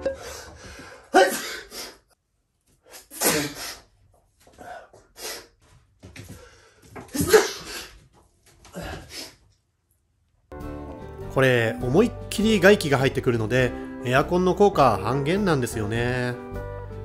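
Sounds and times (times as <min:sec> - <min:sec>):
man sneezing: 0:01.1 - 0:02.0, 0:02.9 - 0:03.9, 0:07.1 - 0:08.0.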